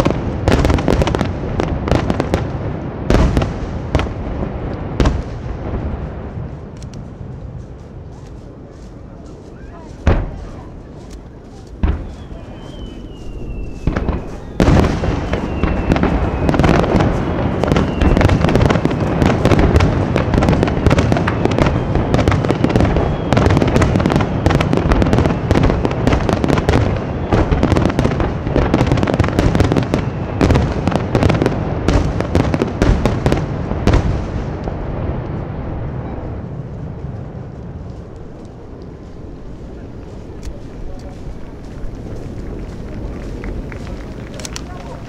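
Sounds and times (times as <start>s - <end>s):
firework shells bursting: 11.1s - 24.8s.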